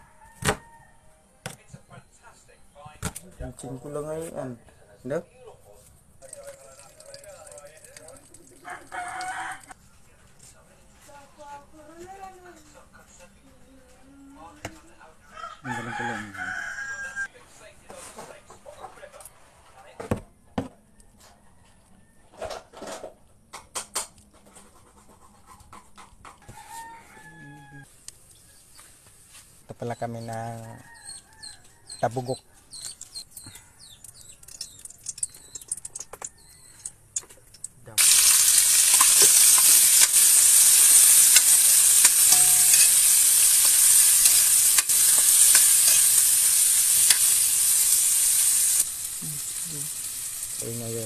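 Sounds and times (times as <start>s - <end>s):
rooster crowing: 0.0s - 1.2s, 8.6s - 9.8s, 15.2s - 17.3s, 26.4s - 27.9s, 39.2s - 46.6s
spoon scraping a pan: 38.0s - 48.8s
vegetables sizzling in a wok: 38.0s - 51.0s.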